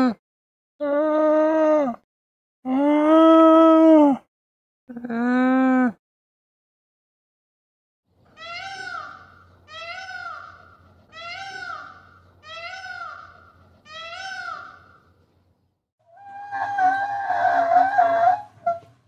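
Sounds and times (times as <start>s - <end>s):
peafowl calling: 8.4s - 15.0s, 16.1s - 19.0s
donkey braying: 16.1s - 19.0s.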